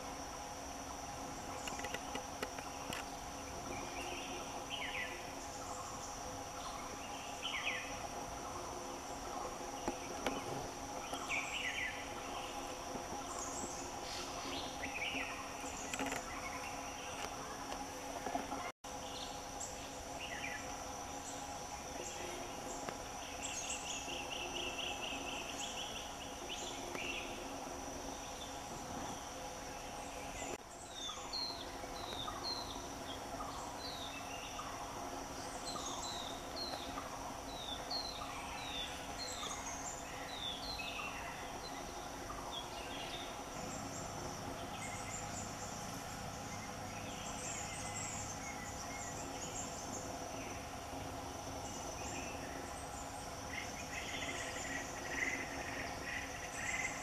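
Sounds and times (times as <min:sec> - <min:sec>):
insects droning: 0:00.0 - 0:57.0
birds calling: 0:01.2 - 0:57.0.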